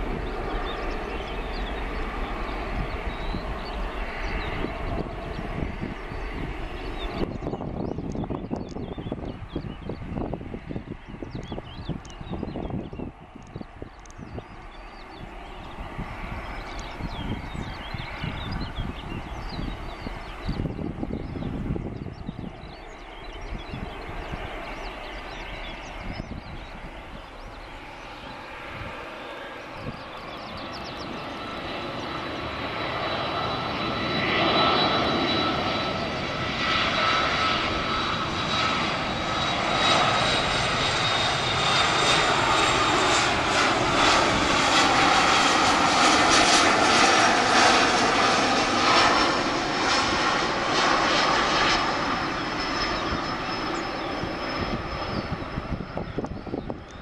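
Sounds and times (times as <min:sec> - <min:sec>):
jet engines with high whine: 0:00.0 - 0:57.0.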